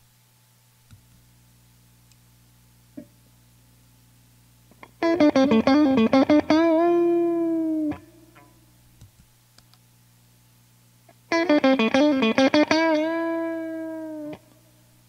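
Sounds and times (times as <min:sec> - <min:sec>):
low amp hum: 0:00.0 - 0:15.0
electric guitar single notes: 0:04.8 - 0:08.6, 0:11.3 - 0:14.7
faint clicks: 0:09.0 - 0:09.8.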